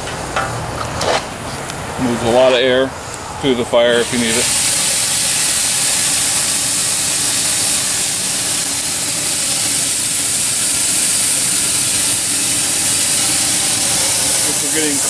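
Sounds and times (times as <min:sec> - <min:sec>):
steam hissing in a smokestack: 0:03.8 - 0:15.0.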